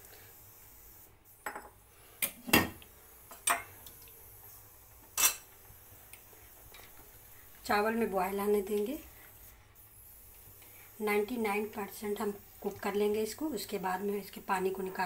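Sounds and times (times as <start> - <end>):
utensils clinking against steel pots: 5.2 - 5.5.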